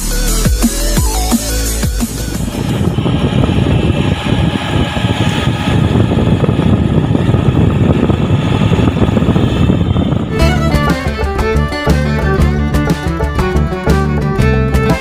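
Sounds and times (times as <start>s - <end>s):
music: 0.0s - 4.6s, 9.6s - 15.0s
wind noise: 0.8s - 15.0s
vehicle road noise: 1.2s - 15.0s.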